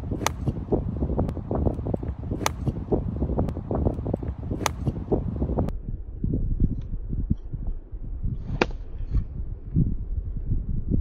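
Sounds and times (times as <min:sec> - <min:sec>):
golf club striking ball: 0:00.1 - 0:00.8, 0:01.8 - 0:03.0, 0:04.0 - 0:05.2.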